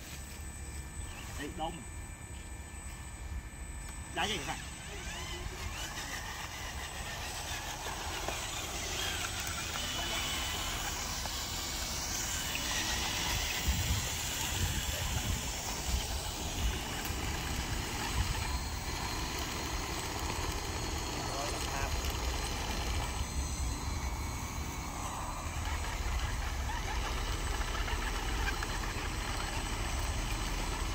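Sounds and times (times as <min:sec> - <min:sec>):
model vehicle motor noise: 0:03.9 - 0:30.9.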